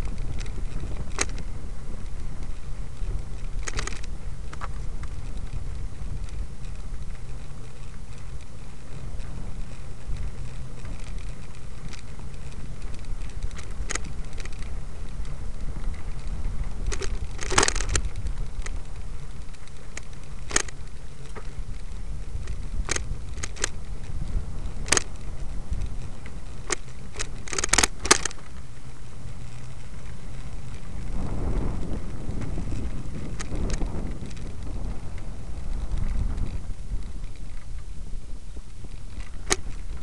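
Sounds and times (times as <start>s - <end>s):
twigs snapping and crackling: 0.0s - 2.5s, 3.3s - 5.5s, 10.2s - 28.9s, 39.1s - 40.0s
wind and handling rumble: 0.0s - 40.0s.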